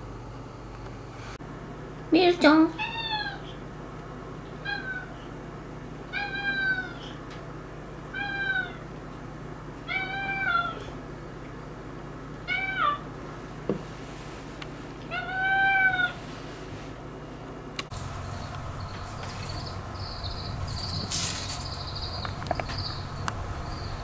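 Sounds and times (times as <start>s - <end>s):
cat meowing: 2.8s - 3.6s, 4.6s - 5.2s, 6.1s - 7.2s, 8.1s - 8.8s, 9.9s - 10.9s, 12.5s - 13.0s, 15.1s - 16.2s.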